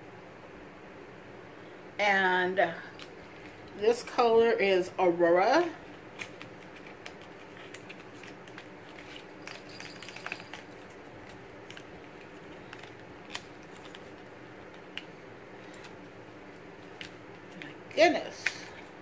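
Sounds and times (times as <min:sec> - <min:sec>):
low room hum: 0:00.0 - 0:19.0
packaging clicks and crinkles: 0:02.9 - 0:03.8, 0:05.8 - 0:19.0.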